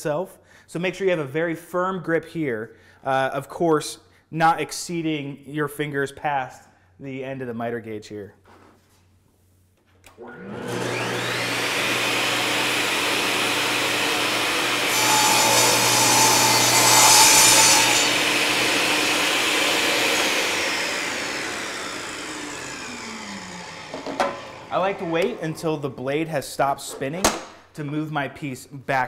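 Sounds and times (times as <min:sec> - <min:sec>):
saw cutting a board: 0:10.2 - 0:25.5
table saw running: 0:10.2 - 0:25.8.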